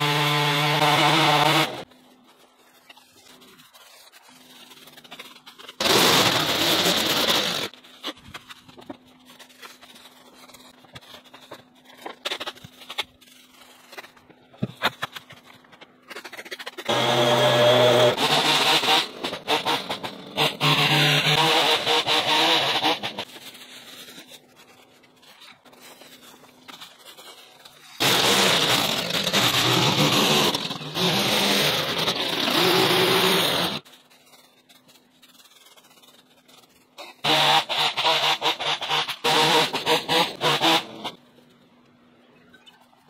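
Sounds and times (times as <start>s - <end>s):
power tool motor running: 5.8s - 7.7s, 16.9s - 23.2s, 28.0s - 33.8s, 37.2s - 41.1s.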